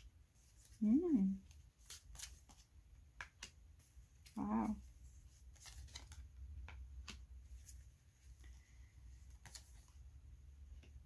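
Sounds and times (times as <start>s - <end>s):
cards clicking and snapping: 1.8s - 4.3s, 5.5s - 7.4s, 9.2s - 10.0s.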